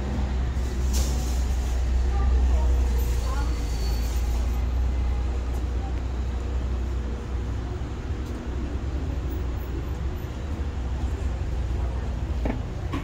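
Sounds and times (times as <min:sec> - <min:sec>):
slow-moving cars rumbling: 0:00.0 - 0:13.0
passers-by talking faintly: 0:01.8 - 0:13.0.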